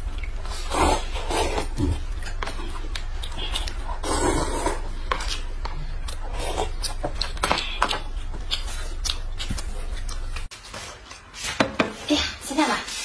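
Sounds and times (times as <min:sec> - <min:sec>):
chewing food: 0:00.0 - 0:10.5
steady low hum: 0:00.0 - 0:10.5
slurping noodles: 0:00.4 - 0:05.4.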